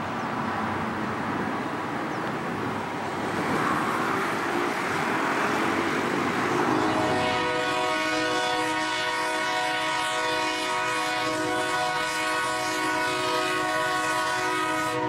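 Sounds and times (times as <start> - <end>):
highway traffic noise: 0.0 - 15.0
locomotive horn chord: 6.5 - 15.0.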